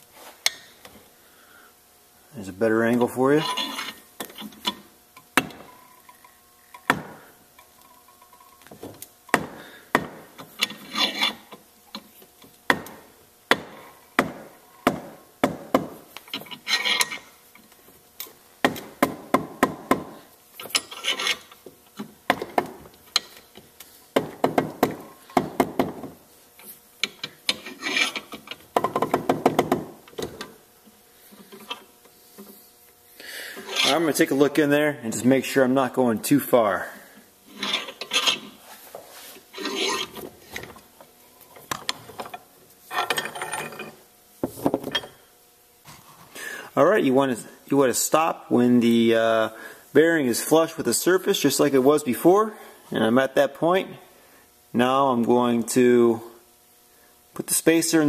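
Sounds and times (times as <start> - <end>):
vise screw creaking and squealing: 3.3 - 4.6, 10.6 - 11.6, 16.3 - 17.3, 20.6 - 21.6, 27.0 - 28.6, 33.6 - 34.3, 37.5 - 38.6, 39.5 - 40.2.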